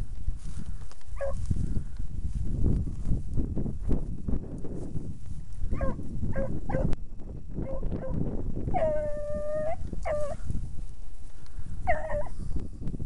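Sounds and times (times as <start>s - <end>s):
dog baying and yelping: 1.2s - 1.4s, 5.7s - 6.9s, 7.6s - 10.4s, 11.8s - 12.3s.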